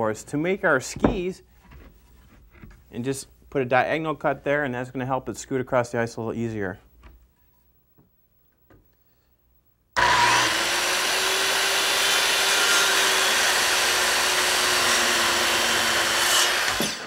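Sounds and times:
circular saw cutting wood: 10.0s - 17.0s.

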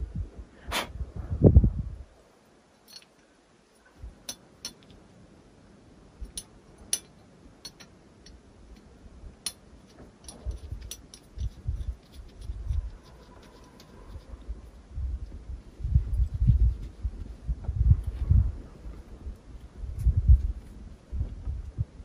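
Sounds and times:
light clicks and clinks: 2.8s - 3.3s
dull low thumps: 15.0s - 18.6s, 19.2s - 22.0s.

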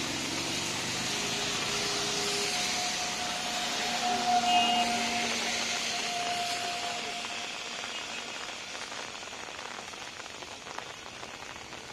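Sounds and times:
passing vehicle engine whine: 0.0s - 7.8s
rain on a wet road: 0.0s - 11.9s.

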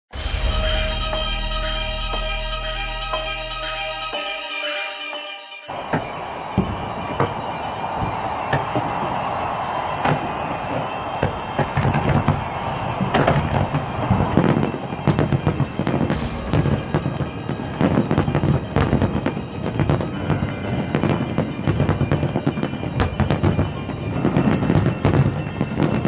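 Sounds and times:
music: 0.1s - 26.0s.

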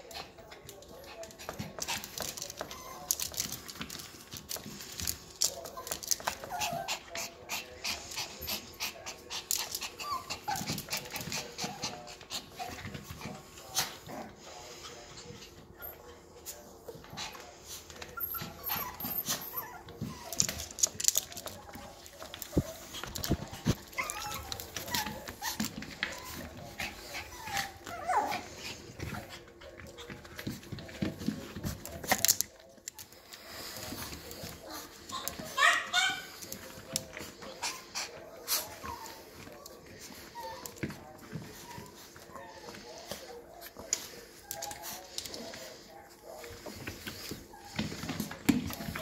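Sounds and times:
dogs whimpering and panting: 0.0s - 49.0s
puppies snuffling: 0.0s - 49.0s
claws clicking and scratching: 1.3s - 6.8s, 20.3s - 28.8s, 31.6s - 37.3s.

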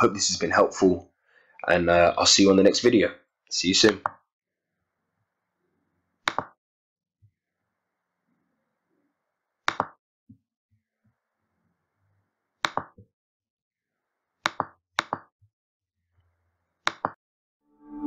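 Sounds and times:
computer mouse clicks: 6.3s - 6.6s, 9.7s - 10.0s, 12.7s - 12.9s, 16.9s - 17.2s.

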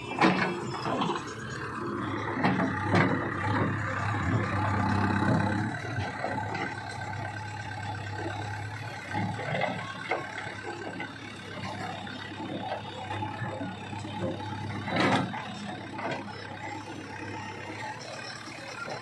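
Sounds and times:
diesel engine running under load: 0.0s - 19.0s.

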